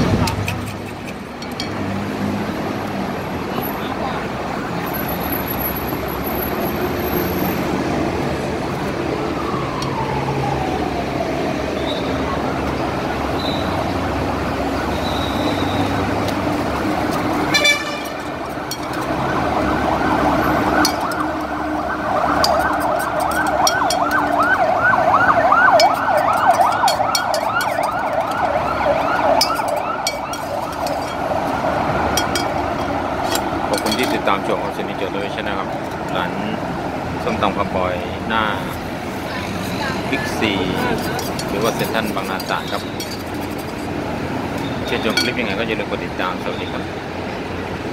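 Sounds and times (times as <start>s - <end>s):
traffic noise: 0.0s - 47.9s
siren wail: 4.4s - 37.7s
siren yelping: 8.4s - 36.7s.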